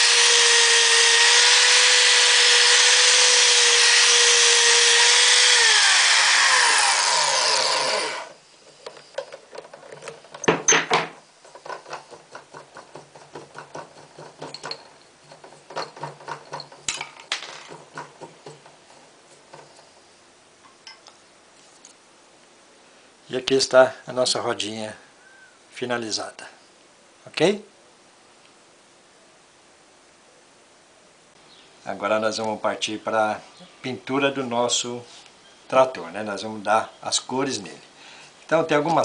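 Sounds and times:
electric drill whining: 0.0 - 8.4.

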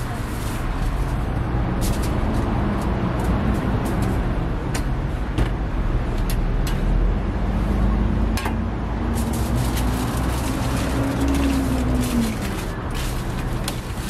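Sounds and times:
street traffic rumble: 0.0 - 14.0
foil crinkling: 9.2 - 14.0.

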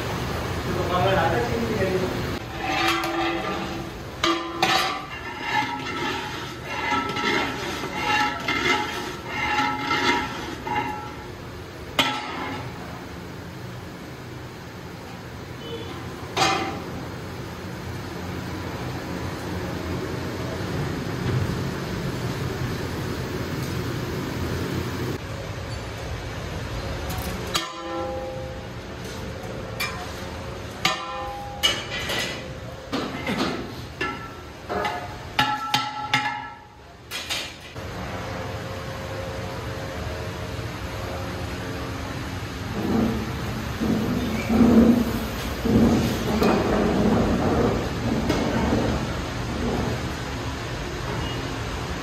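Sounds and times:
metal ladle scraping a pot: 2.4 - 11.3.

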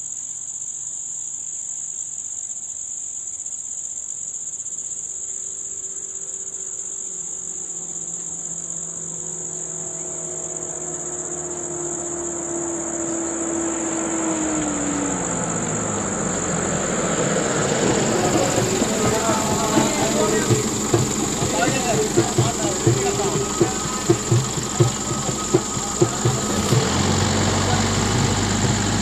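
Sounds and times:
high-pitched insect drone: 0.0 - 29.0
vehicle engine approaching: 7.1 - 29.0.

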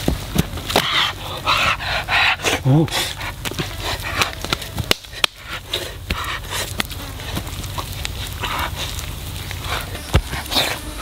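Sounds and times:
fire crackling: 0.0 - 11.0
hands scraping dry soil: 0.0 - 11.0
chicken frying: 5.4 - 11.0.

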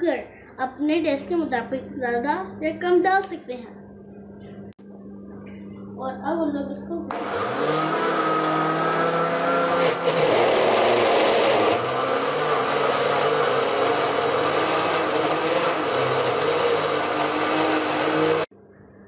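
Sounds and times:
electric blender motor whine: 7.1 - 18.5.

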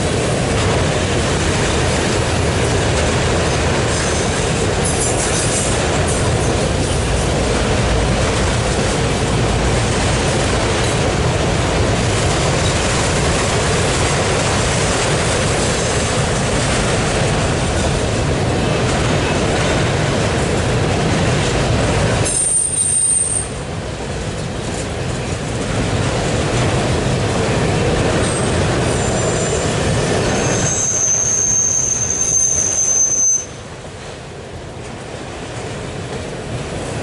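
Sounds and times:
freight train rumbling past: 0.0 - 37.0
high wheel squeal: 22.3 - 23.6, 28.3 - 33.7.

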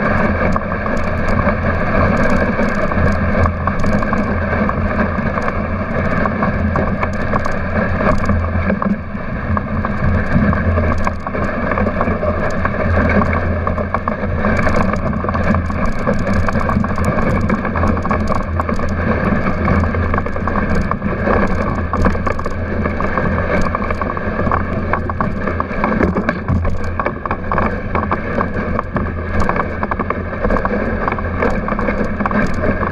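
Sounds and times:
sled rattling: 0.0 - 32.9
sled runners rushing over snow: 0.0 - 32.9.

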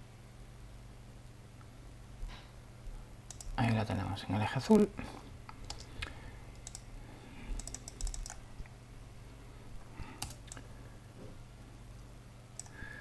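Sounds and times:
faint low hum: 0.0 - 13.0
computer keyboard and mouse clicks: 3.3 - 3.6, 5.5 - 6.9, 7.5 - 8.4, 10.2 - 10.7, 12.6 - 12.8.

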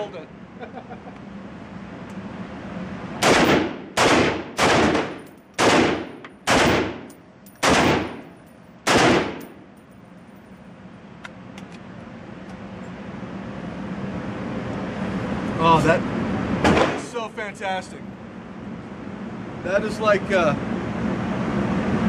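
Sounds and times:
rifle shots echoing indoors: 3.2 - 8.2, 8.8 - 9.5.

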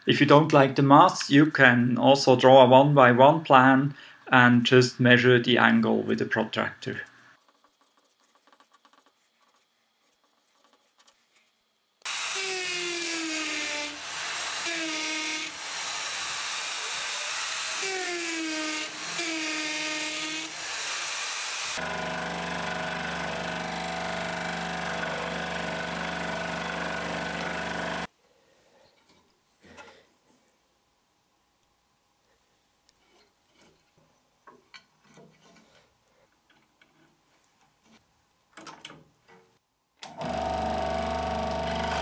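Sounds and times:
scroll saw cutting wood: 12.0 - 28.1, 40.1 - 42.0
drill press boring into wood: 12.1 - 28.1, 40.0 - 42.0.

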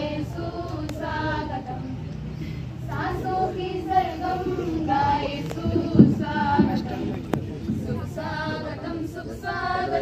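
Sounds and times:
women singing in unison: 0.0 - 2.0, 2.8 - 10.0
dull thump: 5.6 - 8.7.

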